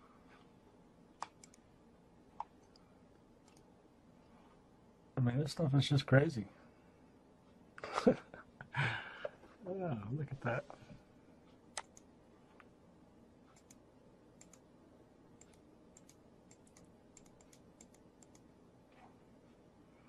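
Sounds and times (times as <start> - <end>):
computer mouse clicks: 1.2 - 1.6, 2.4 - 3.7, 11.7 - 12.7, 13.5 - 13.8, 14.4 - 14.6, 15.4 - 18.5.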